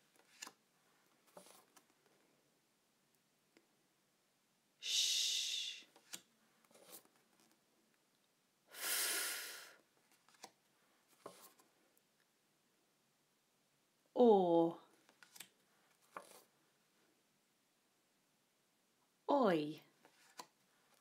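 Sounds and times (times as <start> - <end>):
flashcards clicking: 0.2 - 0.6, 10.2 - 10.6
person hissing phonics sounds: 4.8 - 6.0, 8.7 - 9.8.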